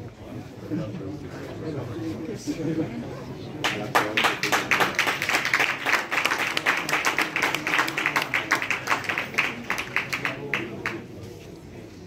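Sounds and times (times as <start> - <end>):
people clapping: 3.6 - 11.2.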